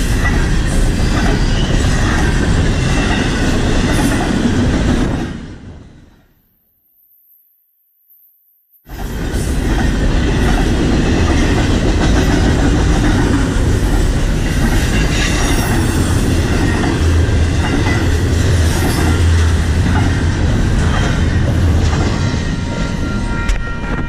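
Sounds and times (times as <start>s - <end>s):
train wheels rumbling on rails: 0.0s - 6.1s, 8.9s - 24.0s.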